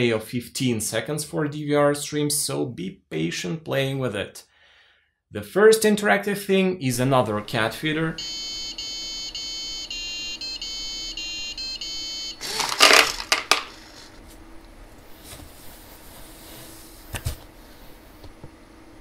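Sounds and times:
cat treats clattering into bowl: 12.5s - 13.8s.

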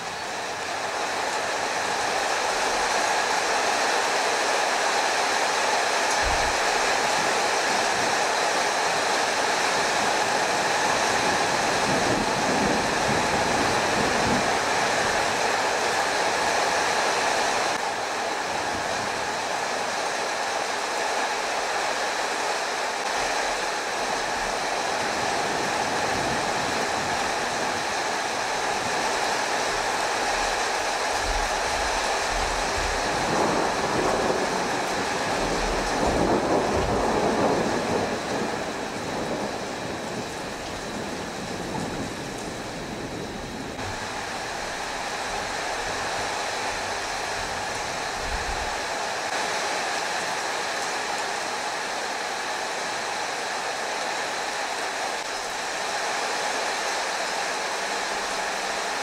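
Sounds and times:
heavy rain: 0.0s - 59.0s
wind: 0.0s - 59.0s
low thunder rumbles: 9.8s - 16.5s, 23.1s - 48.9s.

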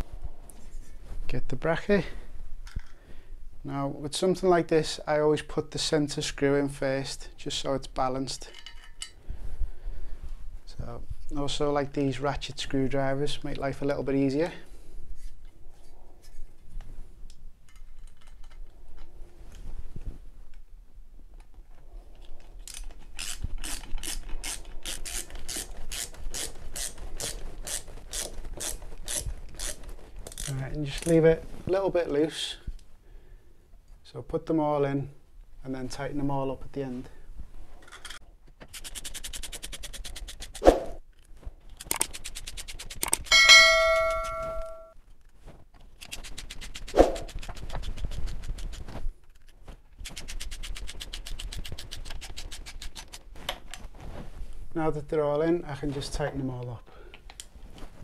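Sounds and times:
ratchet screwdriver clicking: 41.8s - 43.3s
metallic ring: 43.3s - 45.0s.

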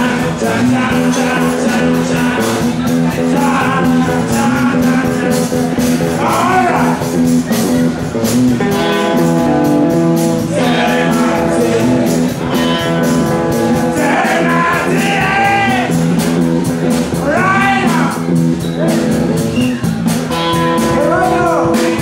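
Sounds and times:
person singing: 0.0s - 7.1s, 10.4s - 16.0s
electric guitars: 0.0s - 22.0s.

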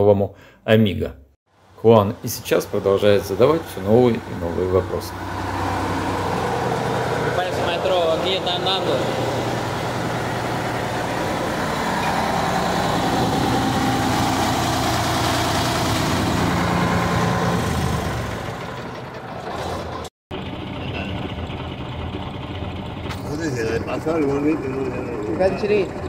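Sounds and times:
truck diesel engine idling: 1.6s - 26.0s.

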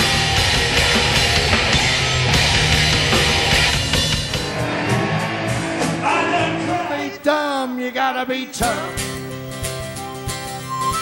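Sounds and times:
guitar piece: 0.0s - 7.2s, 8.5s - 11.0s
live rock band playing: 0.0s - 7.4s, 8.4s - 11.0s
man singing into microphone: 6.0s - 9.0s.

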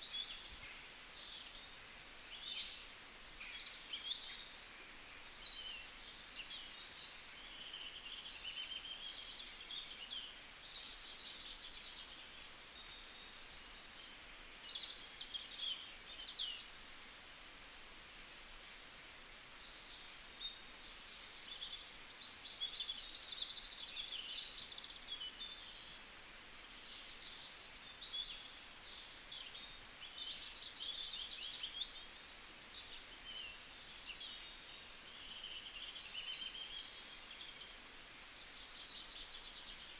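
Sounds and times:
chorus of small birds chirping: 0.0s - 39.9s.

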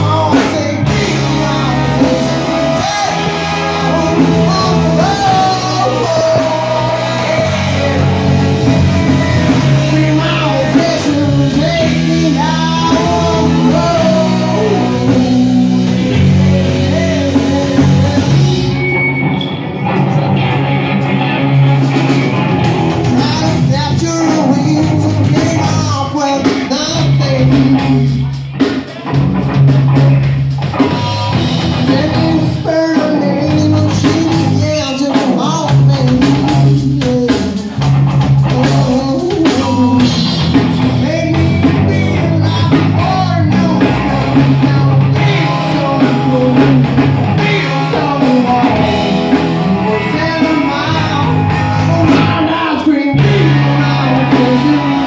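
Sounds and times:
bass guitar long low notes: 0.0s - 55.0s
drum kit: 0.0s - 55.0s
electric guitar: 0.0s - 55.0s.

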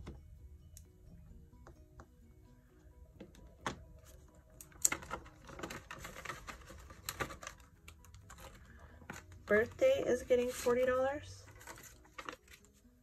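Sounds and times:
plastic binder pocket crinkling: 4.1s - 9.8s, 11.5s - 12.8s
banknotes rustling: 5.1s - 12.8s
binder page turning: 11.5s - 12.8s.

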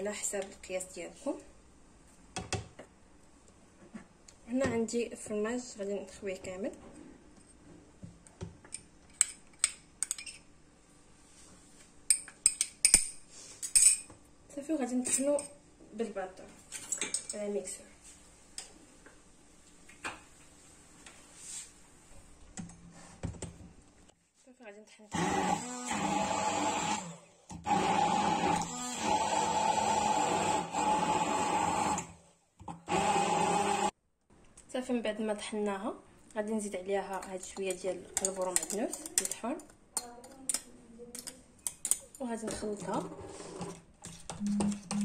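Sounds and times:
immersion blender motor whine: 25.1s - 33.9s.

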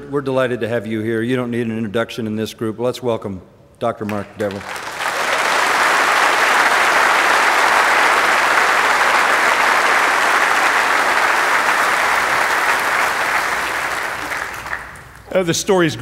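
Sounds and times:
audience applauding: 4.4s - 15.3s.

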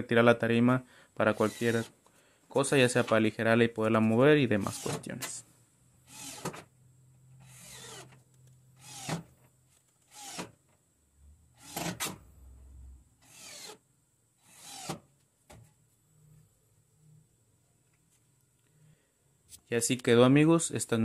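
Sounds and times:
cordless drill driving screws: 6.1s - 6.6s, 7.4s - 8.2s, 8.8s - 9.3s, 10.1s - 10.6s, 13.2s - 13.8s, 14.4s - 15.0s.

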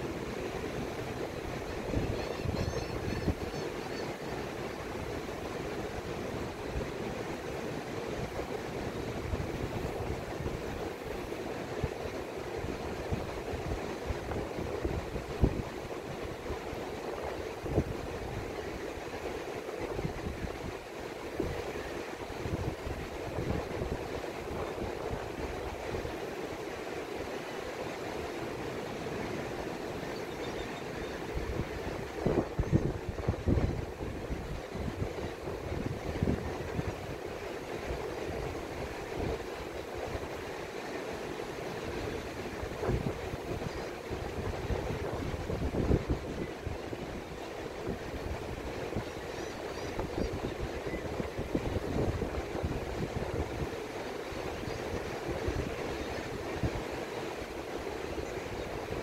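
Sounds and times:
wind buffeting the microphone: 0.0s - 3.9s, 8.2s - 18.9s, 19.8s - 26.2s, 30.5s - 40.4s, 41.8s - 59.0s
surf breaking on a beach: 0.0s - 59.0s
surf washing onto beach: 30.9s - 59.0s.

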